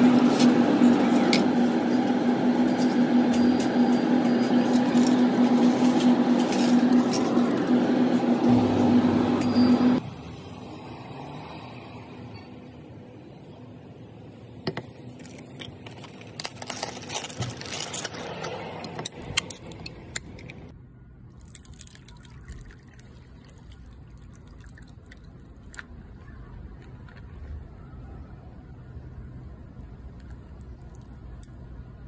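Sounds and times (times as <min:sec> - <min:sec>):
ice cubes clinking: 0:15.1 - 0:18.5
soda pouring over ice: 0:21.4 - 0:25.8.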